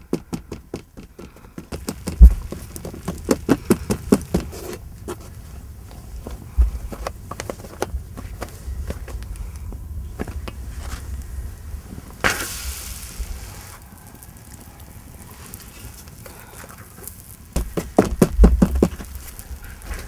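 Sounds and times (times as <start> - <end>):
wood fire crackling: 0.0 - 20.0
brief hiss: 12.2 - 13.9.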